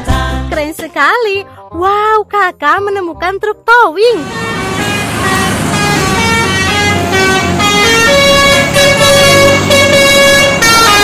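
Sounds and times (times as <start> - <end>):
musical vehicle horn: 4.1 - 11.0
low traffic rumble: 4.2 - 11.0.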